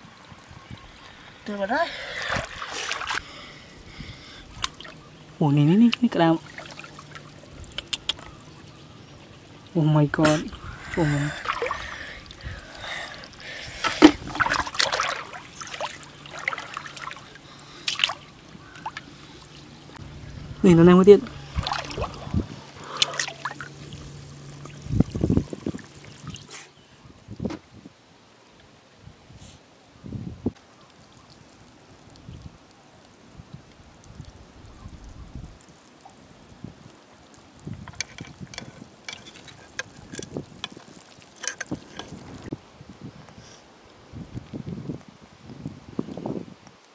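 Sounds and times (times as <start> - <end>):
water splashing: 0.8 - 26.8, 30.7 - 42.6
crab legs clicking on stone: 7.7 - 8.3, 37.8 - 42.3.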